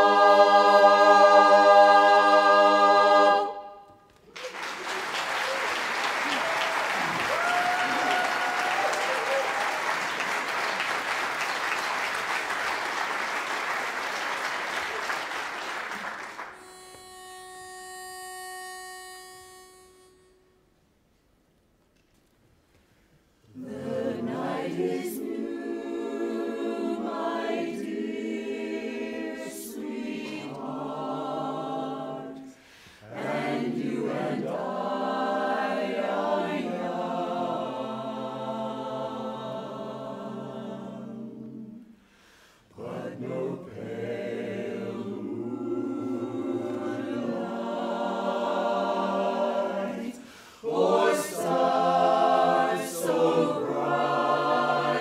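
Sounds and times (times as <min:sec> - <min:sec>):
barbershop chorus singing a cappella: 0:00.0 - 0:03.8, 0:23.5 - 0:42.1, 0:42.7 - 0:55.0.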